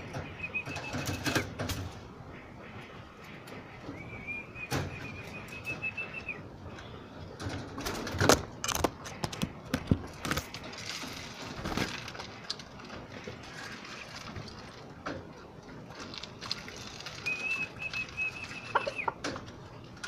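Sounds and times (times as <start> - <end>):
pigeons flapping wings: 0.0 - 2.0, 9.2 - 14.7
steady high whistle: 3.9 - 6.4.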